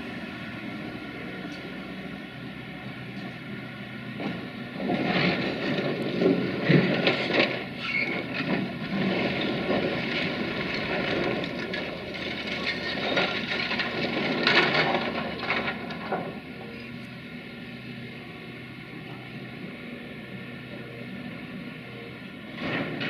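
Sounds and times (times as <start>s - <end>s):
excavator engine running: 0.0s - 23.0s
masonry crunching and crashing: 4.8s - 16.4s.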